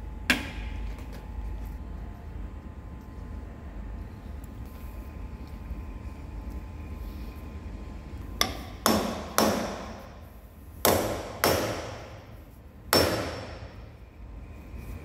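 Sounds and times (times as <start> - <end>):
hammer tapping steel bar: 8.4 - 10.1, 10.8 - 12.2, 12.9 - 13.6.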